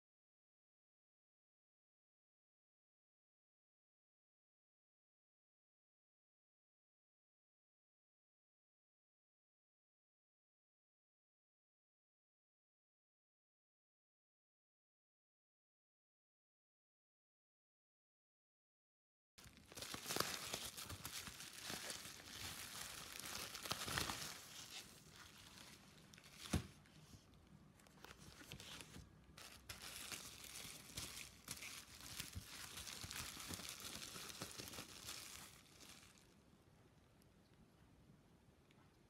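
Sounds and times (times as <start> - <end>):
packaging rustling and crinkling: 19.4 - 27.2, 27.8 - 36.4.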